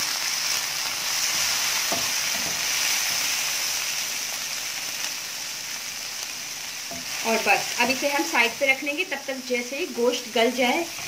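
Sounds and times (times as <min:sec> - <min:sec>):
chillies sizzling in hot oil: 0:00.0 - 0:11.0.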